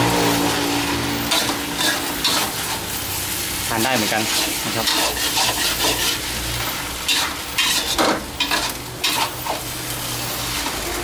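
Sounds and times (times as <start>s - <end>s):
food sizzling in a wok: 0.0s - 11.0s
metal spatula scraping a pan: 0.3s - 3.0s, 3.9s - 9.7s.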